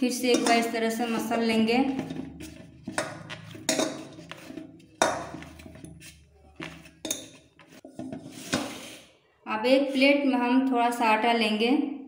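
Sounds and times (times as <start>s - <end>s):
bowl knocking: 0.3s - 8.3s
dough rubbing against metal bowl: 0.3s - 9.1s.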